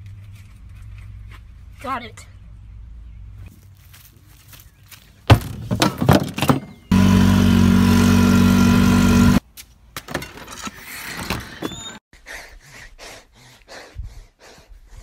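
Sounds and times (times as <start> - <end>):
golf cart humming: 6.9 - 9.4.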